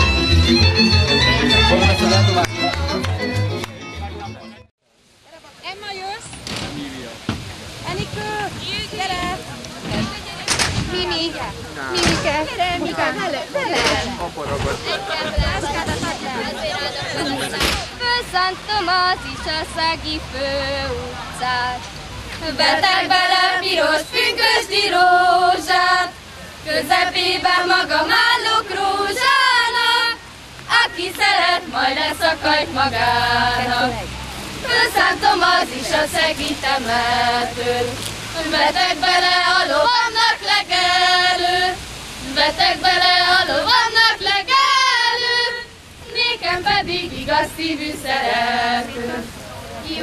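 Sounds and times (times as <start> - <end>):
group of women singing: 14.9 - 50.0.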